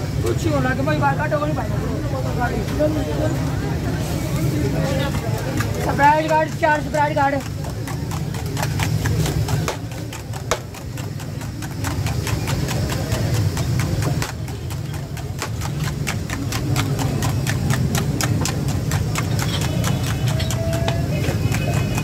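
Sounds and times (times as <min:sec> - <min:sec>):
whisk clicking against steel bowl: 0:05.5 - 0:22.0.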